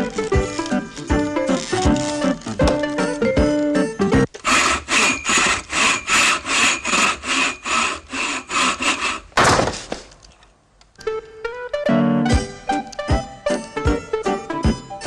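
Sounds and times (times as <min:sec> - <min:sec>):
plucked-string music: 0:00.0 - 0:04.3
rasping strokes: 0:04.4 - 0:09.3.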